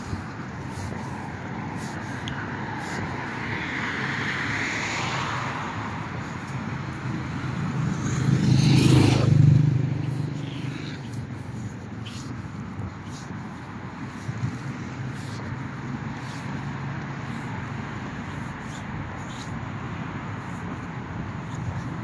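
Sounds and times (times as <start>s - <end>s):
road traffic: 0.0s - 22.0s
vehicle passing close: 1.6s - 12.2s.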